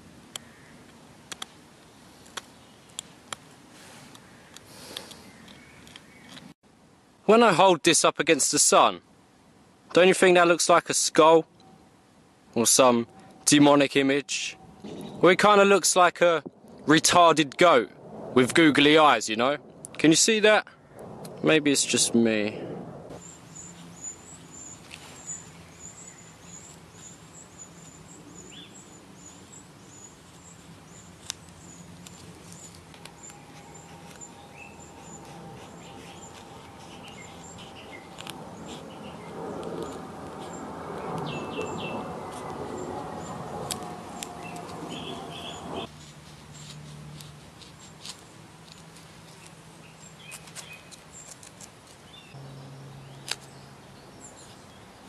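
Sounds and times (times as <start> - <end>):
birds chirping: 4.2 - 6.6, 23.1 - 45.9, 52.0 - 55.0
rushing sound with falling drone: 16.5 - 20.2, 20.8 - 23.2, 32.0 - 45.9
knife paring dry fungus: 29.2 - 52.1, 53.2 - 53.6.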